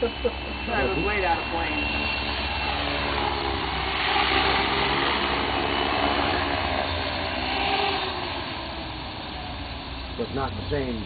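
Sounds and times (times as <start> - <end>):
rc helicopter rotor whirring: 0.0 - 11.0.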